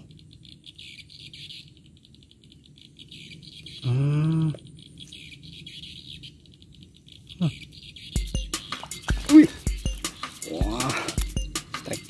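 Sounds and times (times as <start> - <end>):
fast-pulsing high chirping chorus: 4.8 - 12.0.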